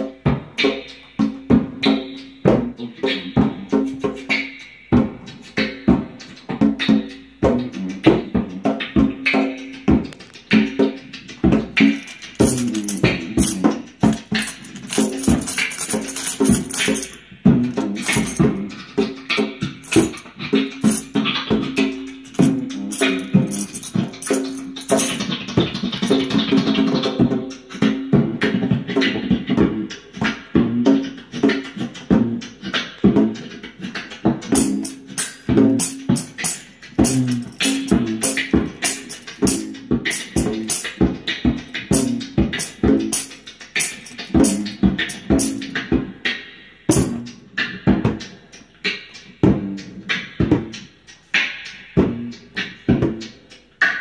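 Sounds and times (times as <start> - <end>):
beatboxing into microphone: 0.0 - 14.1, 25.4 - 35.8, 37.9 - 54.0.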